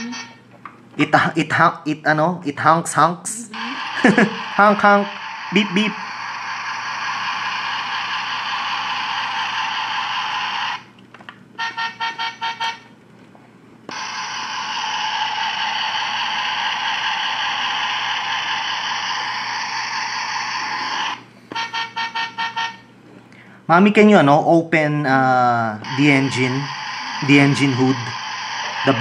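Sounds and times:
hissy electronic noise: 3.4 - 10.9, 13.9 - 21.2, 25.5 - 29.0.

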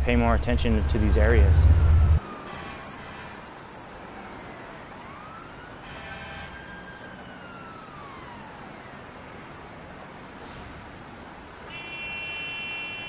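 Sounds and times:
faint siren wailing: 0.0 - 10.3
traffic noise: 0.0 - 13.0.

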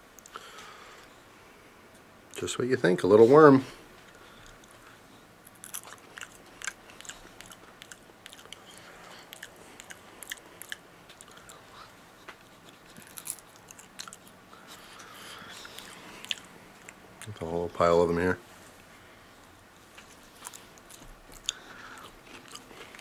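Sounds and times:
person chewing crunchy food: 4.1 - 17.5, 19.5 - 23.0.

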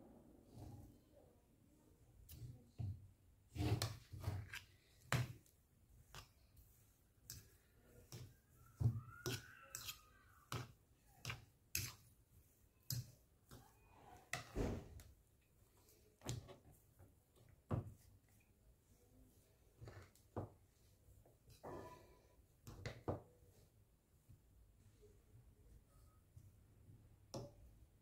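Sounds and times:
fork clinking and scraping bowl: 9.2 - 12.1.

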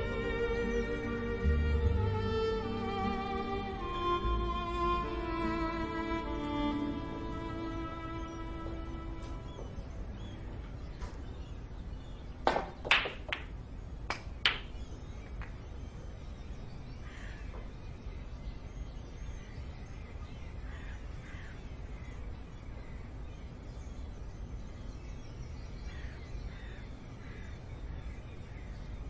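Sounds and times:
low background rumble: 0.0 - 12.9
crows cawing faintly: 17.0 - 17.8, 20.0 - 23.6, 25.8 - 28.8.

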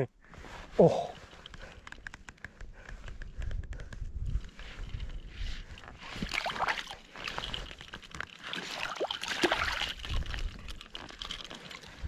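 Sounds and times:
water splashing and sloshing: 4.4 - 12.0.

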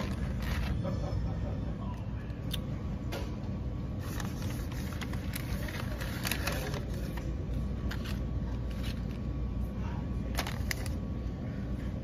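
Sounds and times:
paper bag crackling: 0.0 - 1.0, 4.0 - 9.4, 10.2 - 11.2.

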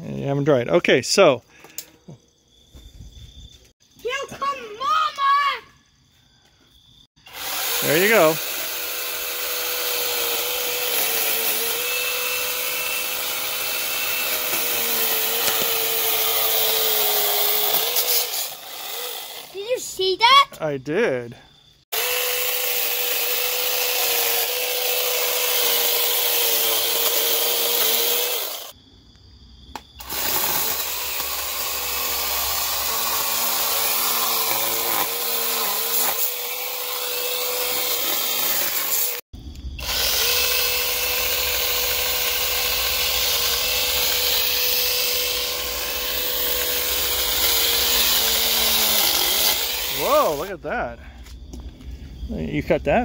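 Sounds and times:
mini chainsaw motor whine: 7.2 - 19.9, 21.9 - 28.8, 30.0 - 50.5
chain cutting brush: 7.5 - 19.6, 21.9 - 28.7, 30.0 - 39.2, 39.8 - 50.5.

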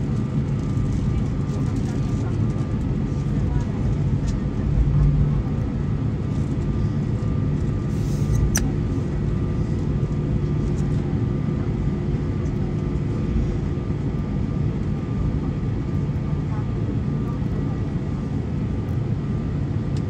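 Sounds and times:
aircraft cabin low rumble: 0.0 - 20.0
sharp click: 8.3 - 8.7.

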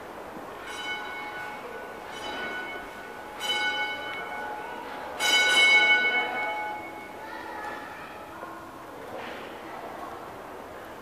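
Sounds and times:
bell ringing: 0.6 - 7.1.

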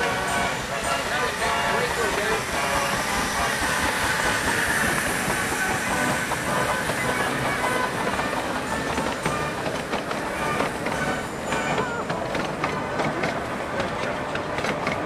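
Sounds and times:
steam venting: 0.0 - 11.7
miniature locomotive running: 0.0 - 15.0.

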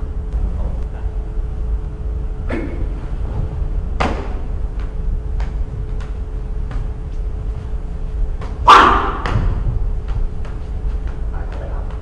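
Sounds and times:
low rumble: 0.0 - 12.0
faint knocks of strikes and footwork: 2.5 - 12.0
person shouting: 8.7 - 9.3.

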